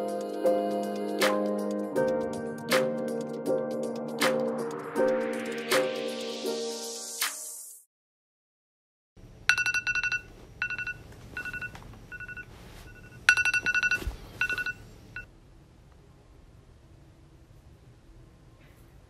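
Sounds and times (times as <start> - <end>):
phone message alert beeps: 10.6 - 15.3.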